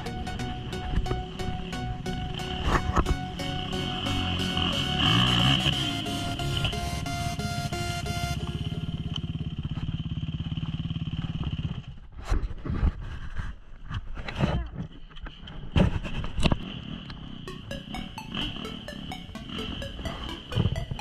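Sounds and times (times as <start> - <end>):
motorcycle engine running: 0.0 - 12.2.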